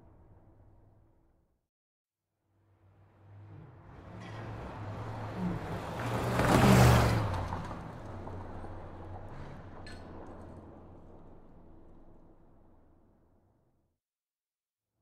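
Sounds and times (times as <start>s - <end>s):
motor vehicle passing by: 3.0s - 12.3s.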